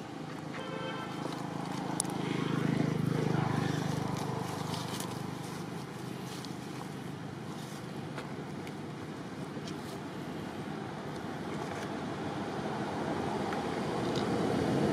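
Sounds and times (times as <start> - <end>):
vehicle engine passing: 0.0 - 8.6.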